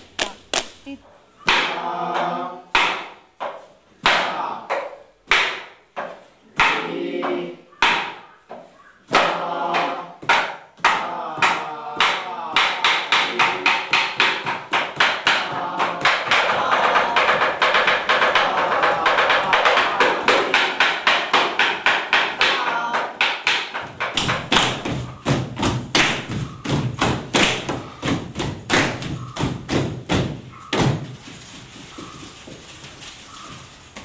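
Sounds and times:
chanted rhythm syllables: 0.0 - 34.0
sharp percussive strikes: 9.1 - 31.3.

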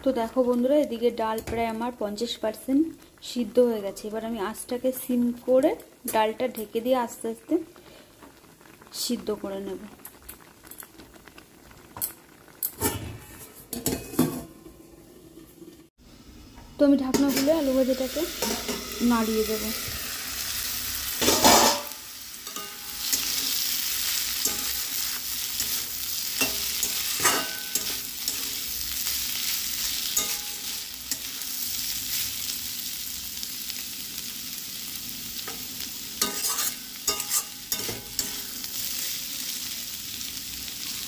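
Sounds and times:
potatoes sizzling in oil: 0.0 - 41.0
metal spatula scraping a pan: 21.2 - 31.4, 36.2 - 39.2.

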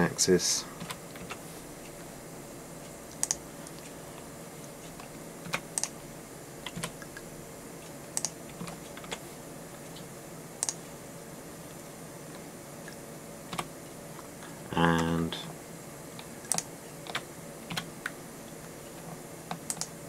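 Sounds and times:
steady low hum: 0.0 - 20.0
keyboard keys clicking: 3.1 - 3.4, 19.5 - 19.9.

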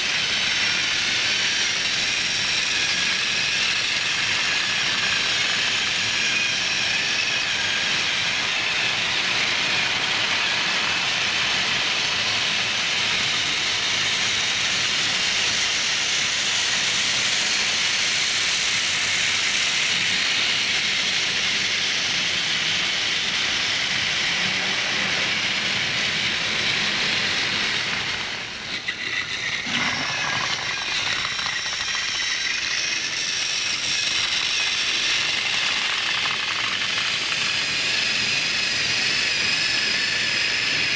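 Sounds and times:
toy train motors whirring: 0.0 - 40.9
toy train wheels rattling: 27.2 - 38.4.

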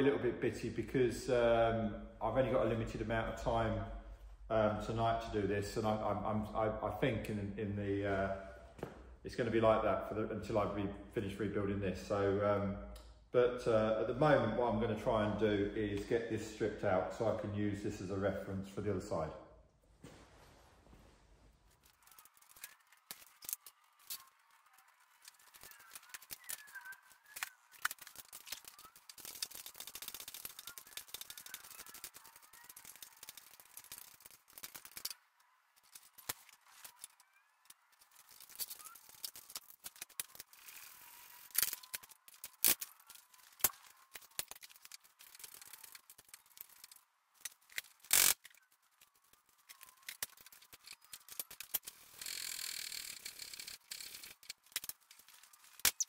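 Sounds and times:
metal parts clinking and rattling: 21.8 - 35.2, 35.8 - 56.0.

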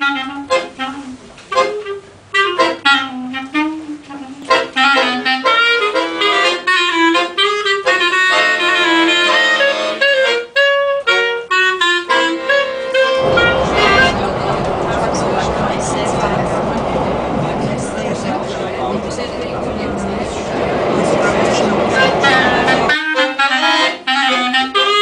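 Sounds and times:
clarinet melody: 0.0 - 14.1, 22.2 - 25.0
accordion chords: 0.0 - 14.8, 21.7 - 25.0.

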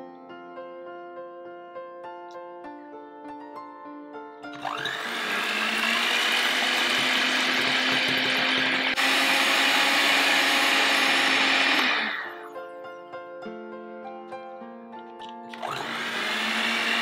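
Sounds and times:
electric hand mixer whining: 4.6 - 12.5, 15.5 - 17.0.

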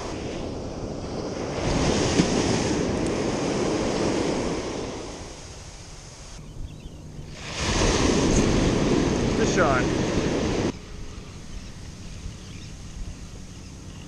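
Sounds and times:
ocean surf washing up: 0.0 - 6.4, 7.4 - 11.3
wind buffeting microphone: 0.0 - 14.0.

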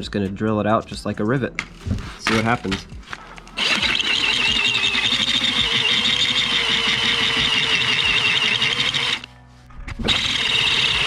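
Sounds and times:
power drill drilling metal: 3.6 - 9.3, 10.1 - 11.0.

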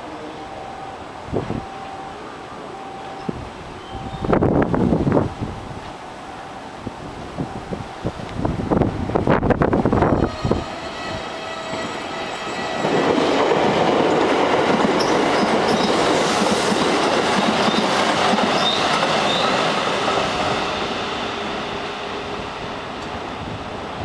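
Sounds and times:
train wheels rumbling on rails: 7.0 - 24.0.

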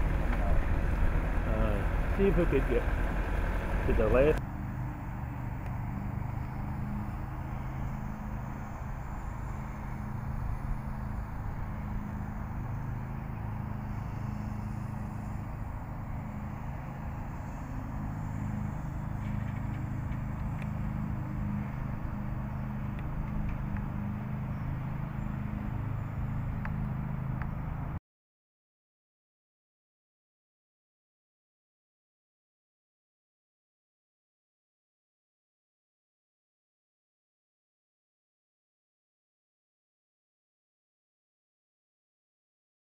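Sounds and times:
car engine humming: 0.0 - 28.0.

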